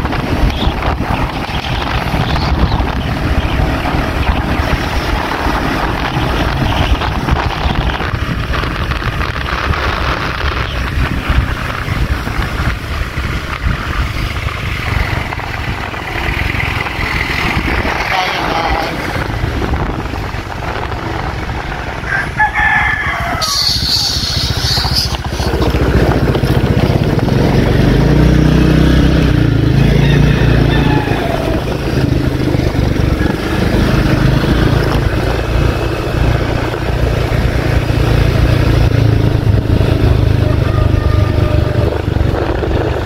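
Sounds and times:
vehicle engine running: 0:00.0 - 0:43.0
rooster crowing: 0:22.0 - 0:24.3, 0:29.7 - 0:31.7, 0:40.4 - 0:42.1.

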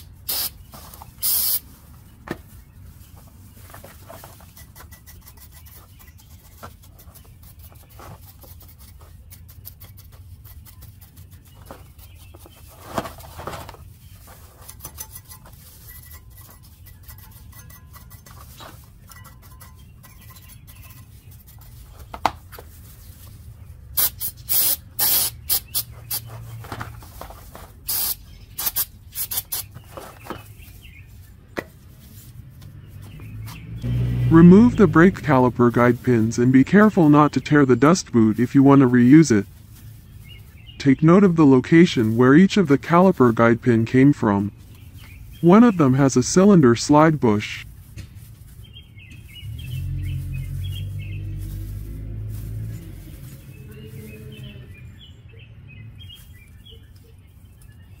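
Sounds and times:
short loud hissing bursts: 0:00.0 - 0:00.6, 0:01.2 - 0:01.7, 0:24.0 - 0:26.2, 0:27.8 - 0:29.7
scraping and rubbing metal: 0:03.0 - 0:33.8.

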